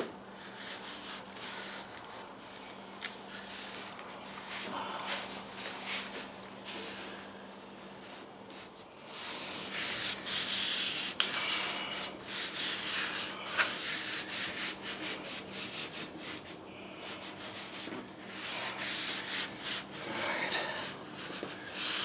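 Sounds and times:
hands rubbing fiberglass sheet: 0:00.4 - 0:02.3, 0:08.0 - 0:20.2, 0:20.8 - 0:22.0.

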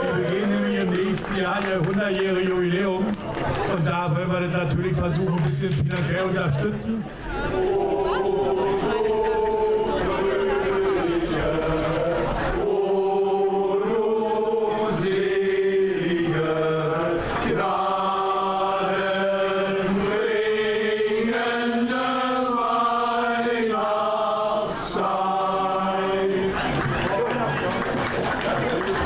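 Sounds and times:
men's choir singing: 0:07.4 - 0:27.1.

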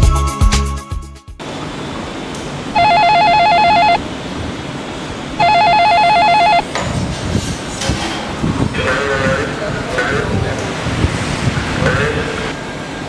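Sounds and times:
warbling electronic telephone ring: 0:02.8 - 0:04.0, 0:05.4 - 0:06.7.

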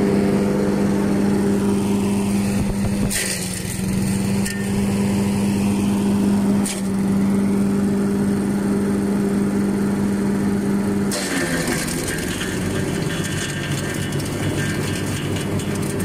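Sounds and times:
wood chipper engine running: 0:00.0 - 0:16.0.

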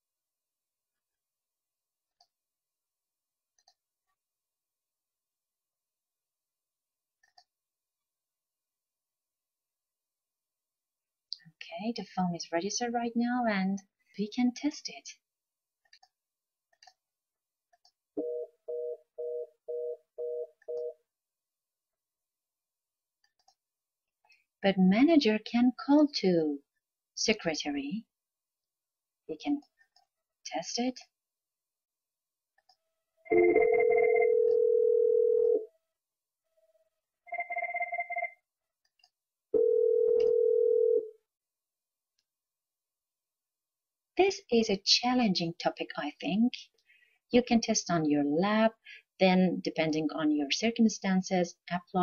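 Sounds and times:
phone ringer trilling: 0:33.3 - 0:35.7, 0:37.3 - 0:38.4.

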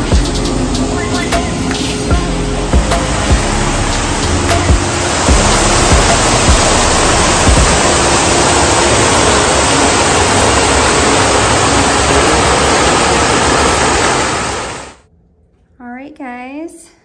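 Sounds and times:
fountain water splashing: 0:02.6 - 0:15.0.

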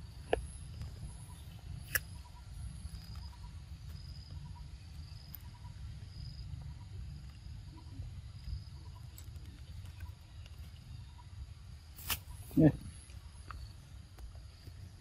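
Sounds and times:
insects chirping: 0:00.0 - 0:15.0
low steady rumble: 0:00.0 - 0:15.0.

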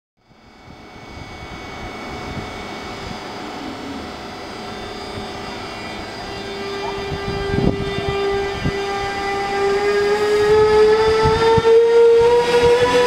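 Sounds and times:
electric locomotive rumbling: 0:00.2 - 0:13.0
high motor whine: 0:00.2 - 0:13.0.

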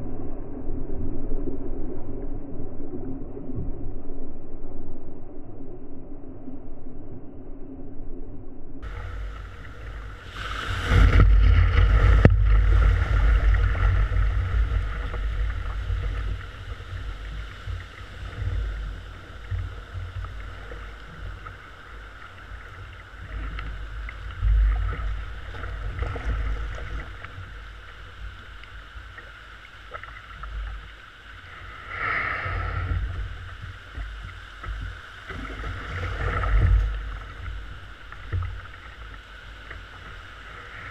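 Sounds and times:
wind rumble on microphone: 0:00.0 - 0:40.9
surf water rushing and splashing: 0:08.8 - 0:40.9.

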